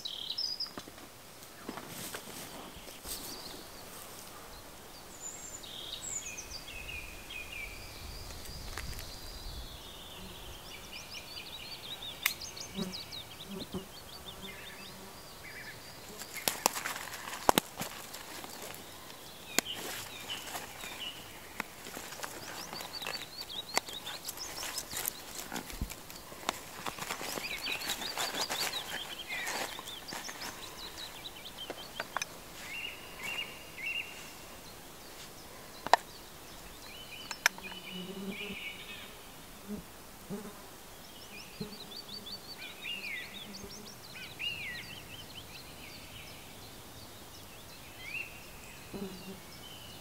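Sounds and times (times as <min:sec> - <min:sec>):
songbirds singing: 0:00.0 - 0:50.0
gear being handled: 0:16.2 - 0:18.8, 0:19.6 - 0:32.2.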